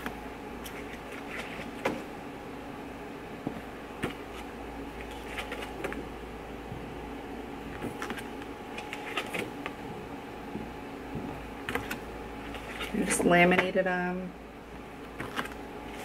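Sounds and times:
room hum: 0.0 - 16.0
laminated paper crinkling: 15.1 - 16.0.

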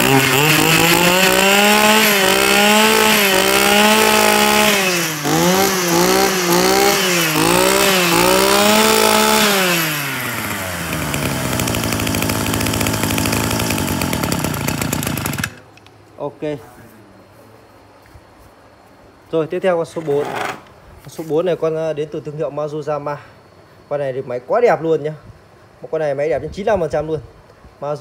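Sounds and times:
brush cutter engine revving: 0.0 - 15.7.

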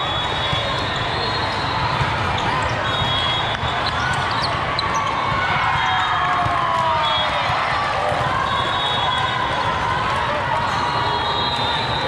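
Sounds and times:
volleyballs hit and bouncing: 0.0 - 8.6
many voices chattering: 0.0 - 12.0.

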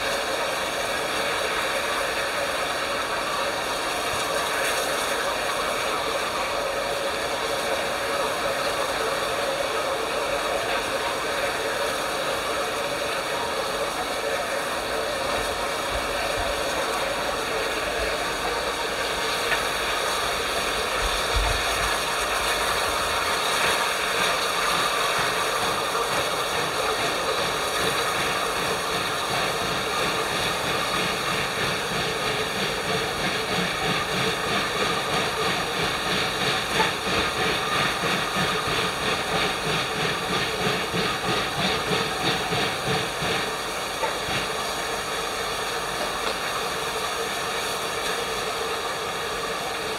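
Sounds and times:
steam hissing: 0.0 - 49.9.

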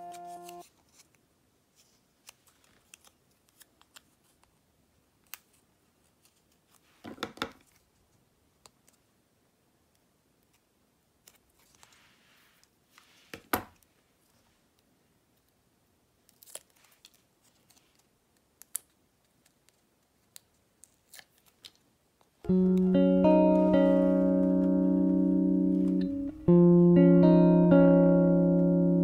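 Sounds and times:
soft rustle of tape backing: 0.1 - 22.8.

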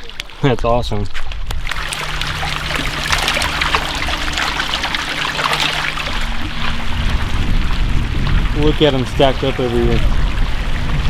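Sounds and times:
water trickling and splashing: 0.0 - 11.0
faint low hum: 1.6 - 10.1.

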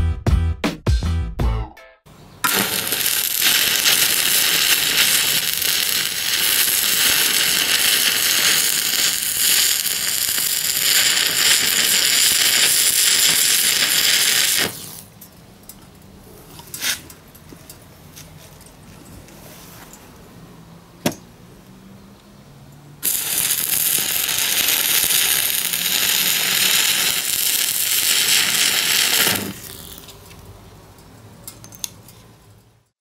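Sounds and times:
music: 0.0 - 2.1
welding arc crackling hiss: 2.4 - 15.2, 23.0 - 30.4.

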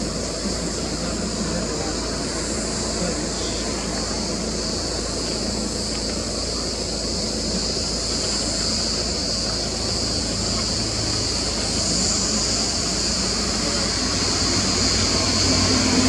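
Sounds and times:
high-pitched hiss: 0.0 - 16.0.

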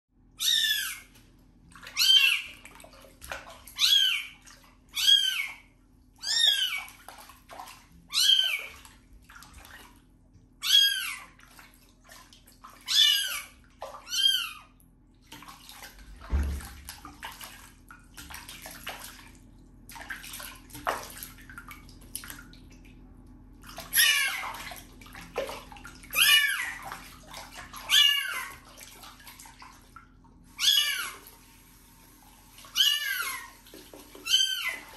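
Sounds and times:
water sloshing and splashing: 0.3 - 34.9
low thump: 16.3 - 16.7.

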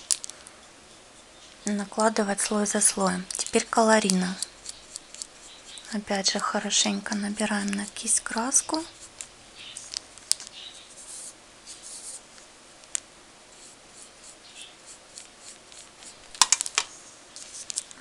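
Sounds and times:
paintbrush swishing on paper: 10.6 - 12.5, 13.5 - 16.3, 16.9 - 17.9.

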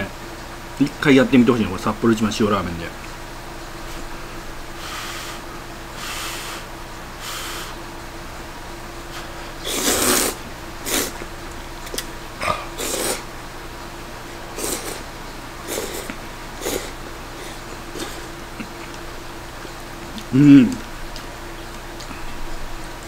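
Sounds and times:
faint steady hum: 0.0 - 23.0
person slurping noodles: 9.2 - 11.2, 12.4 - 13.3, 14.5 - 18.3.

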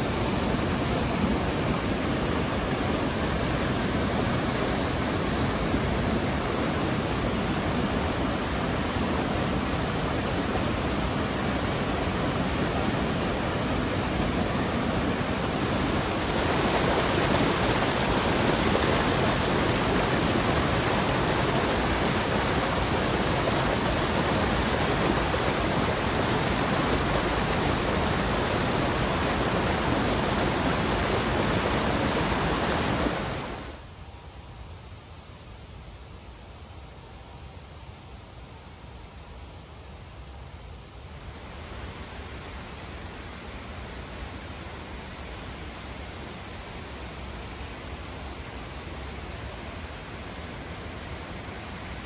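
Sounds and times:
stream rushing over rocks: 0.0 - 33.9, 41.1 - 52.0.

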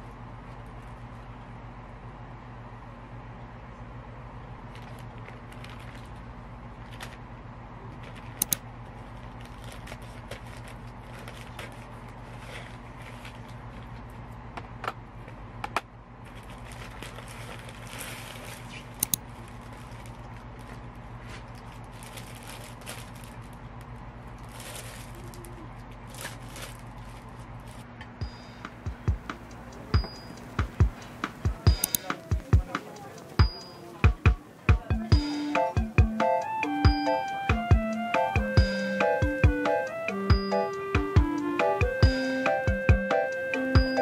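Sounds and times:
steady low hum: 0.0 - 41.4
plastic packaging crinkling: 4.6 - 7.2, 8.0 - 14.1, 16.2 - 28.0
sharp crackling clicks: 18.9 - 19.3.

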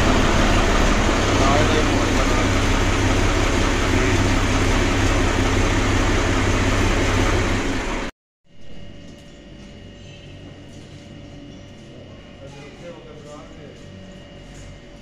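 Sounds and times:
tractor diesel engine running: 0.0 - 8.1.

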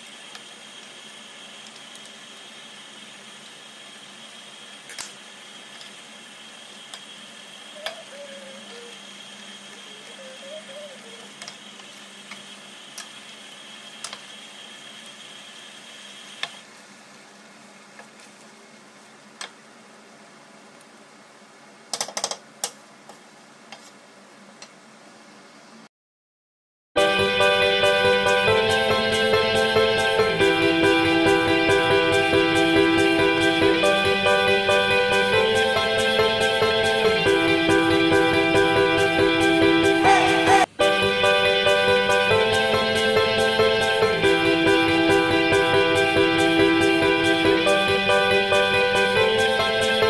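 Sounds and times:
curry simmering hiss: 0.0 - 21.7.

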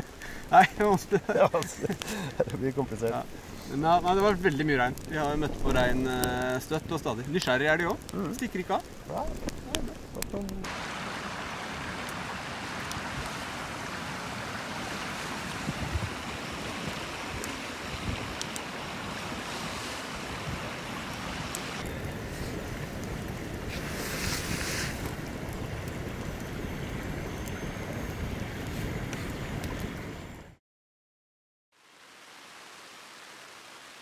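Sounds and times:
wind buffeting microphone: 2.5 - 10.7, 14.8 - 30.4
river rushing: 10.6 - 26.2
sharp hiss: 23.7 - 25.0.

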